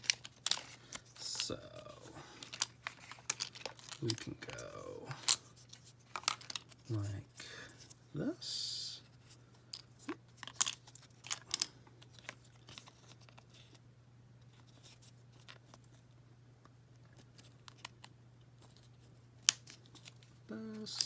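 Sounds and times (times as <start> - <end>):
plastic parts clicking: 0.0 - 1.4, 2.4 - 4.6, 6.1 - 6.7, 10.4 - 12.9
faint low hum: 0.0 - 21.0.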